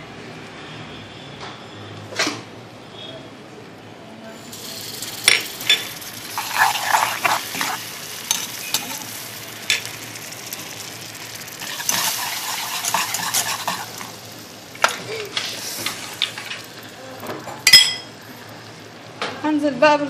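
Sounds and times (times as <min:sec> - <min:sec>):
caramel sizzling and bubbling: 0:04.3 - 0:19.8.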